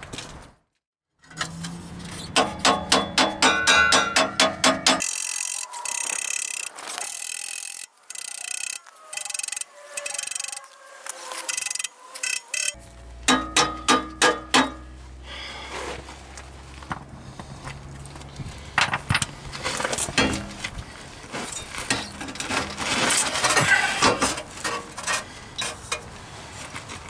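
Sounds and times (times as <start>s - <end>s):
ratchet wrench clicks: 5.0s - 10.6s, 11.5s - 12.8s
ratchet wrench ratcheting: 5.0s - 10.7s, 11.5s - 12.8s.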